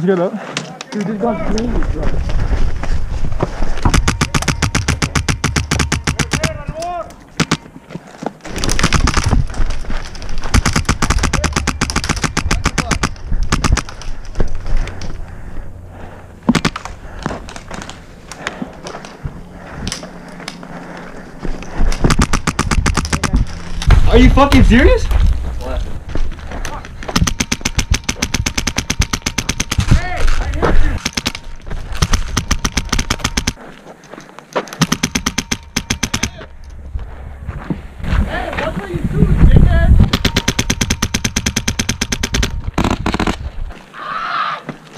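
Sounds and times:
airsoft rifle automatic fire: 3.9s - 6.6s, 10.5s - 13.9s, 27.2s - 29.9s, 32.0s - 33.6s, 34.8s - 36.4s, 40.1s - 43.4s.

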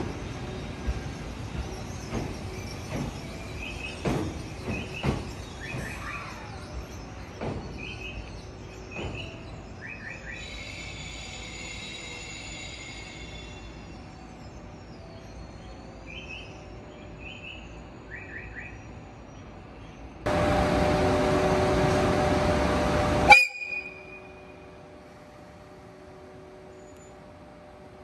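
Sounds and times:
train horn: 20.3s - 24.4s.

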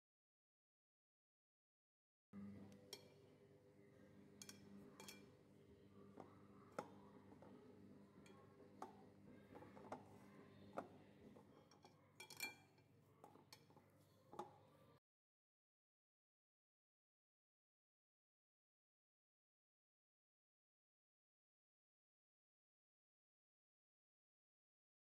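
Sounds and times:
low steady hum: 2.4s - 15.0s
fingers tapping glass bowl: 4.4s - 5.3s.

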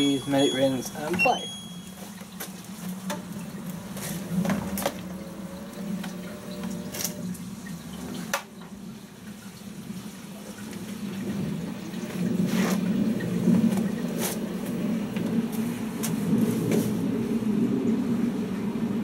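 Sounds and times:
washing machine hum: 0.0s - 19.0s
water running into washing machine: 0.0s - 19.0s.

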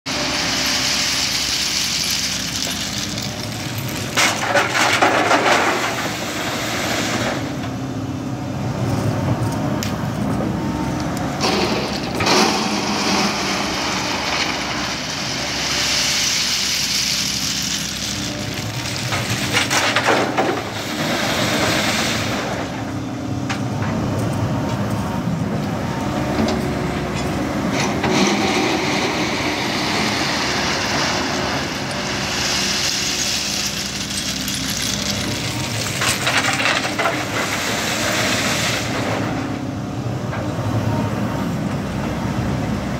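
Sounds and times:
excavator diesel engine running: 0.1s - 42.9s
stones clattering into truck body: 1.0s - 6.4s, 16.0s - 21.8s, 32.8s - 37.6s.

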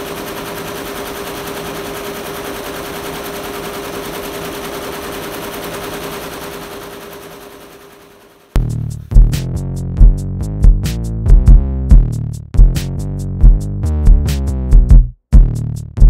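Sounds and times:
machine hum: 0.0s - 8.9s.

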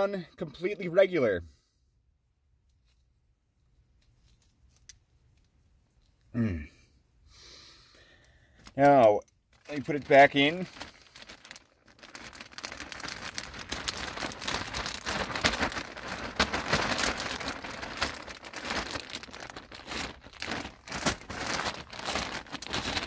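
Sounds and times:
plastic bag crinkling: 8.6s - 23.0s.

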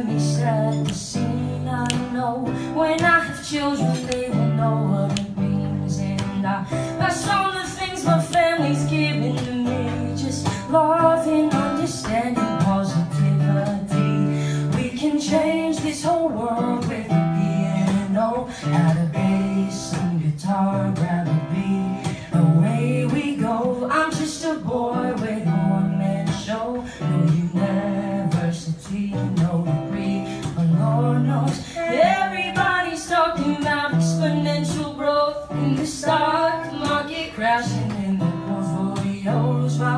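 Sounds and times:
man singing: 0.0s - 39.9s
strummed acoustic guitar: 0.0s - 39.9s.

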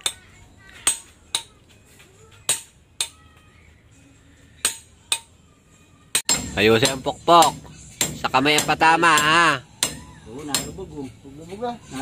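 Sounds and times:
hammer striking steel: 4.6s - 5.3s, 6.1s - 11.0s.

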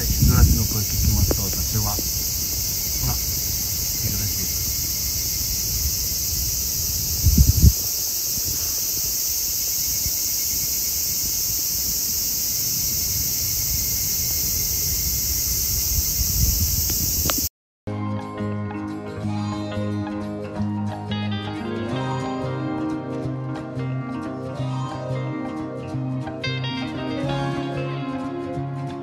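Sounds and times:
low thumps: 0.0s - 8.6s
cicadas chorus: 0.0s - 17.5s
music: 17.9s - 29.0s.

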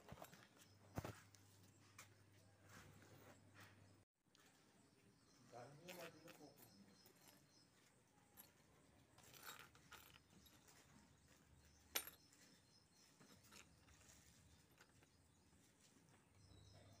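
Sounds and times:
metal keychain clinking on concrete: 5.8s - 15.4s.

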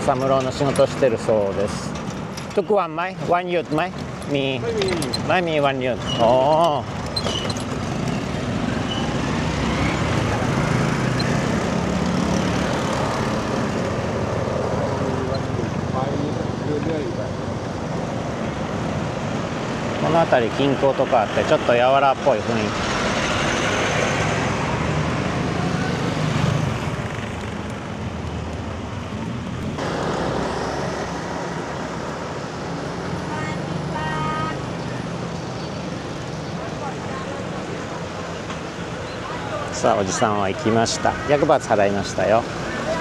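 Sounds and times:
street traffic: 0.0s - 43.0s
vehicles passing on road: 0.0s - 43.0s.

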